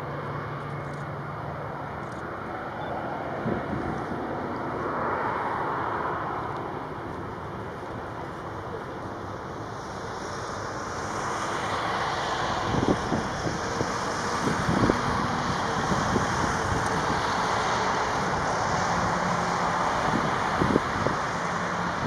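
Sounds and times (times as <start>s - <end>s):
jet engines rushing: 0.0s - 22.0s
wind buffeting microphone: 3.2s - 7.1s, 12.4s - 22.0s.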